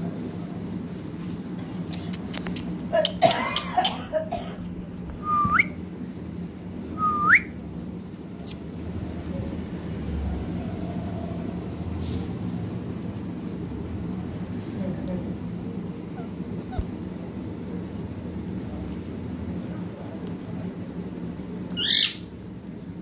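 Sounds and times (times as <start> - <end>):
parakeet whistles: 21.8 - 22.2.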